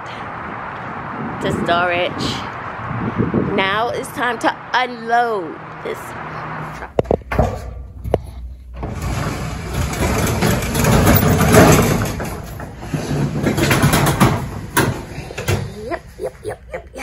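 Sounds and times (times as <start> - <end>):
metal roll-up door rattling: 8.7 - 15.8.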